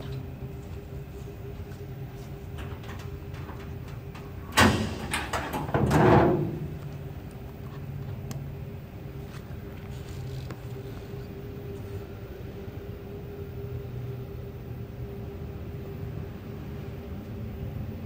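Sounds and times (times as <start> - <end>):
hood swinging up on hinges: 1.5 - 7.1
hood latch clack: 2.5 - 7.1.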